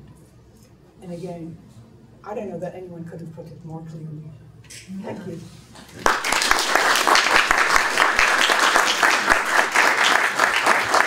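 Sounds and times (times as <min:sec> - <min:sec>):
audience applauding: 0:06.0 - 0:11.0.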